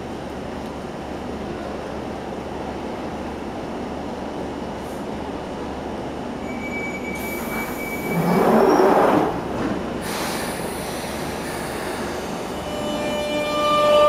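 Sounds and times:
train rumbling pulling away: 0.2s - 14.0s
train doors closing rush: 4.7s - 14.0s
train warning tone: 6.4s - 9.0s, 12.2s - 14.0s.

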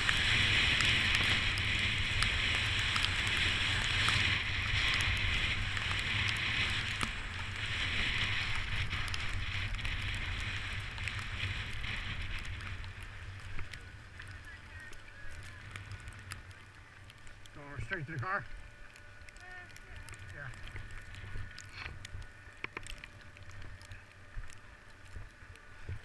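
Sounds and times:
wind buffeting microphone: 0.0s - 16.4s
skis sliding on snow: 0.0s - 26.0s.

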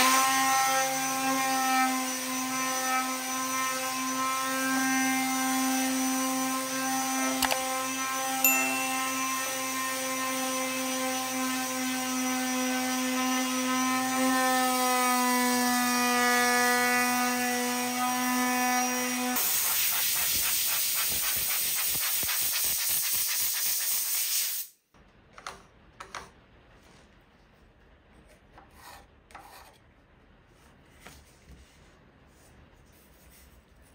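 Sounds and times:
electric palm sander whining: 4.2s - 15.7s.

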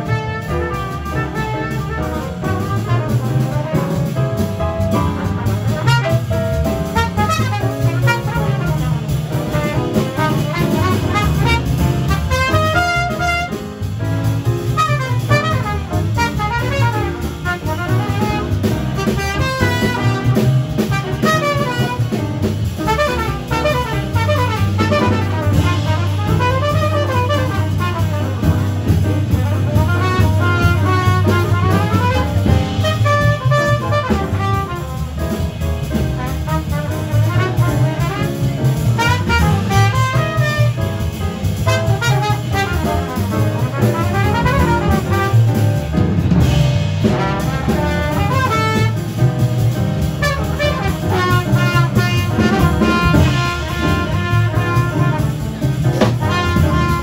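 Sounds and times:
double bass: 0.0s - 57.0s
trumpet playing: 0.0s - 57.0s
upright piano: 0.0s - 57.0s.

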